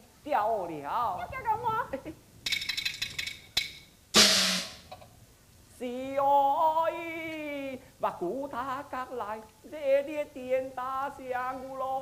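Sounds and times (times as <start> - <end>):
ringing metallic percussion strikes: 3.6 - 4.9
loud cymbal crash: 4.1 - 4.9.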